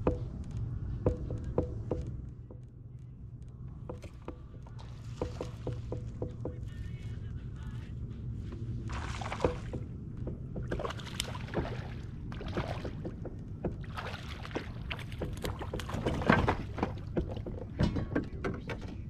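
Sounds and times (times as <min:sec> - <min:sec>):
water sloshing and splashing: 0:03.9 - 0:06.5, 0:08.8 - 0:19.0
knocks against kayak hull: 0:09.4 - 0:11.8.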